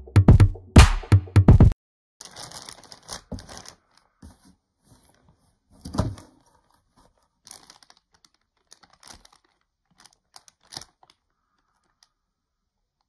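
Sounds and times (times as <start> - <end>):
plastic packaging crinkling: 2.2 - 12.2.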